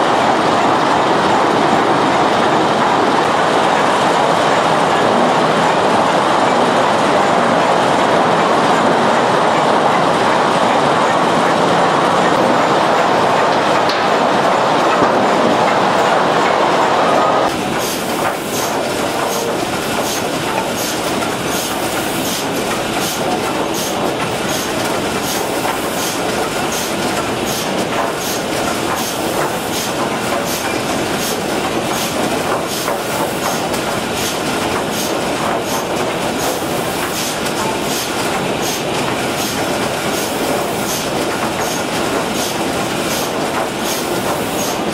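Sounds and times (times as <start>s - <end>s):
sawmill machinery clatter: 0.0s - 44.9s
boards knocking through grader: 11.4s - 44.9s.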